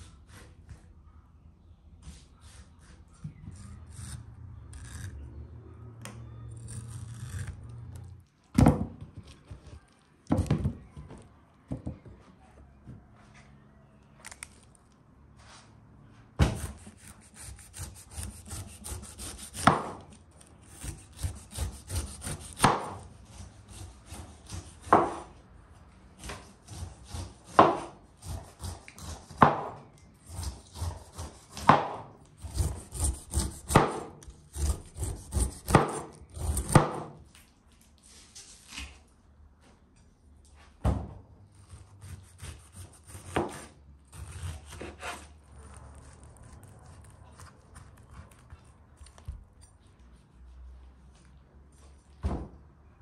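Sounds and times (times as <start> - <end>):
knife sawing through pineapple skin: 16.5 - 25.2, 30.2 - 31.8, 32.4 - 37.0, 41.7 - 48.7.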